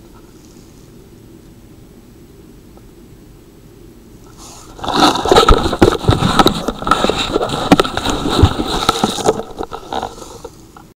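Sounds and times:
camera handling noise in grass: 0:04.3 - 0:10.6.

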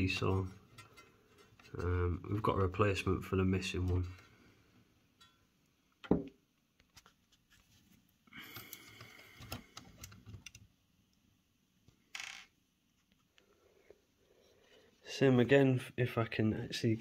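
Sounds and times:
metal tools clicking and scraping: 0:00.3 - 0:01.9.

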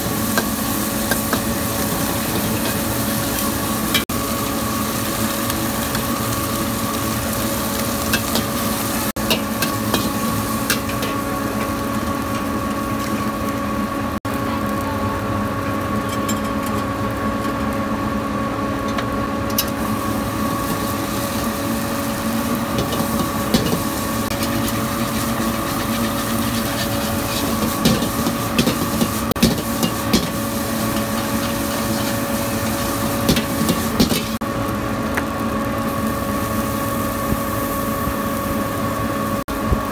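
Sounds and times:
rice sizzling in a wok: 0:00.0 - 0:39.9
steady machine hum: 0:00.0 - 0:39.9
metal spatula scraping a wok: 0:22.8 - 0:34.4.

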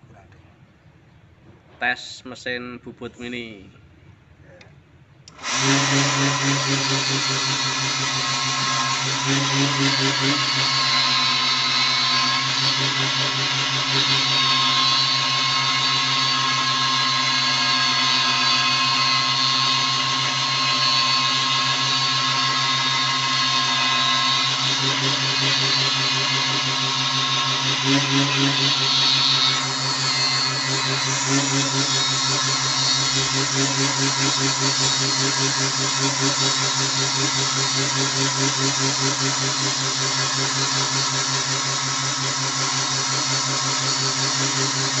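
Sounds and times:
wood lathe motor running: 0:05.3 - 0:45.0
chisel shaving turning wood: 0:22.3 - 0:45.0.

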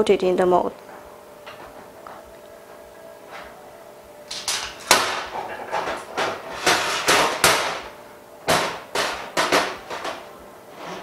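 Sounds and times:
metal parts clattering on workbench: 0:04.3 - 0:07.9.

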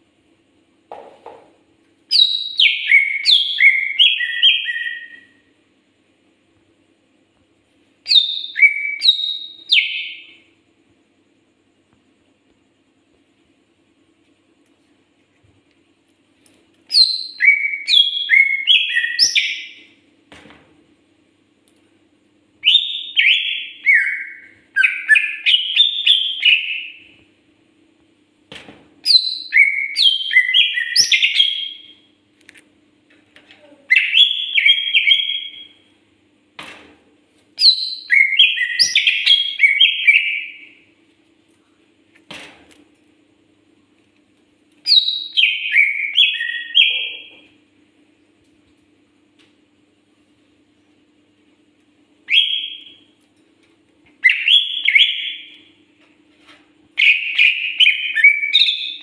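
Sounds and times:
faint steady hum: 0:00.0 - 0:59.0
bird singing whistled notes: 0:02.1 - 0:05.4, 0:08.0 - 0:10.5, 0:16.9 - 0:19.9, 0:22.6 - 0:27.1, 0:29.1 - 0:32.0, 0:33.9 - 0:35.8, 0:37.6 - 0:40.8, 0:44.9 - 0:47.3, 0:52.3 - 0:53.1, 0:54.2 - 0:55.7, 0:57.0 - 0:59.0.

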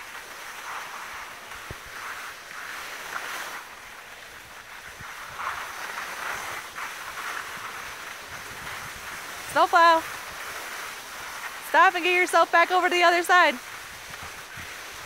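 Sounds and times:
skis scraping over snow: 0:00.0 - 0:15.0
wind on microphone: 0:04.3 - 0:12.6, 0:13.4 - 0:15.0.

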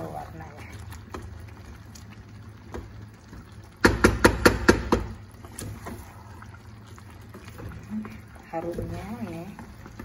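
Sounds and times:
spatula stirring in a pot: 0:00.0 - 0:10.0
spatula knocking against pot: 0:03.8 - 0:05.2.

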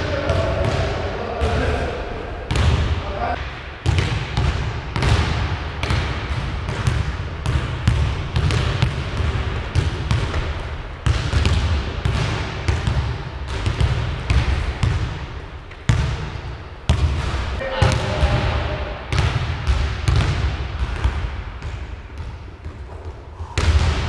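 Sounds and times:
basketball bouncing on wooden floor: 0:03.8 - 0:15.2, 0:15.9 - 0:16.3, 0:16.9 - 0:24.0.

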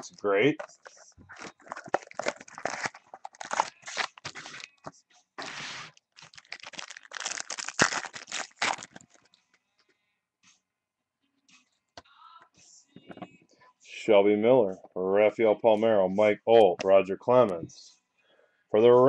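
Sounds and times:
foil wrapper crinkling and tearing: 0:01.3 - 0:04.8, 0:05.4 - 0:09.3.

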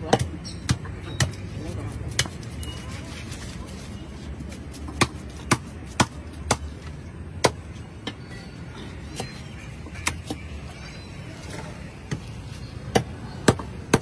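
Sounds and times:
knife chopping fish on wood: 0:00.0 - 0:01.5, 0:02.1 - 0:02.4, 0:04.9 - 0:06.7.

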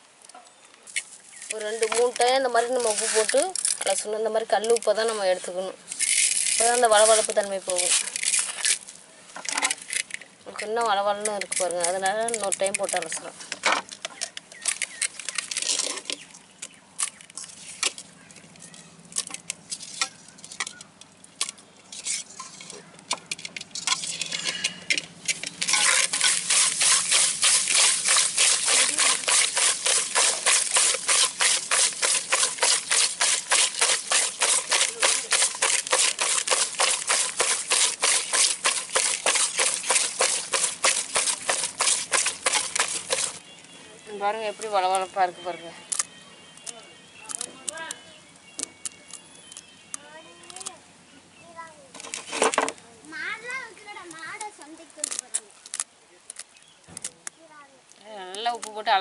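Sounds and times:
hands scrubbing with rock salt: 0:00.9 - 0:04.1, 0:05.0 - 0:08.8, 0:25.1 - 0:43.4.

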